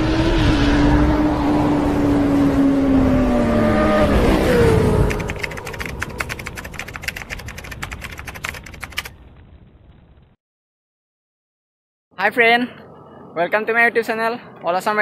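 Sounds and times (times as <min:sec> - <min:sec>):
motorcycle engine revving down: 0:00.0 - 0:05.6
typewriter clicks: 0:05.1 - 0:09.1.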